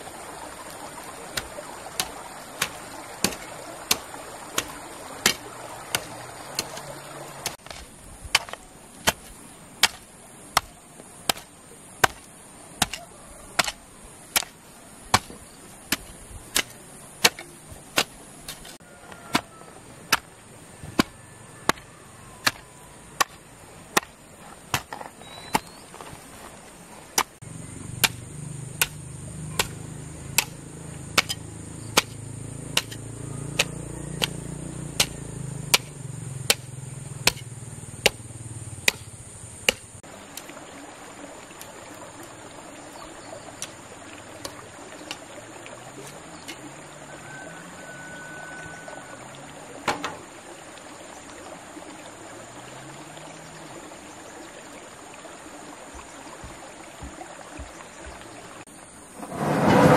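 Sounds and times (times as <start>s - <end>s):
hoe chopping into dry soil: 1.4s - 20.3s, 22.4s - 22.6s, 23.2s - 26.3s, 28.0s - 38.2s, 38.8s - 39.9s.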